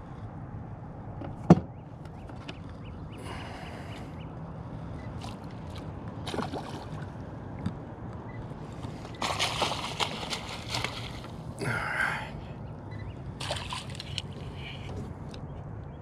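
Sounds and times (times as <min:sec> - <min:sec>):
fish thrashing and splashing: 0:05.2 - 0:07.1, 0:09.1 - 0:11.5, 0:13.4 - 0:14.4.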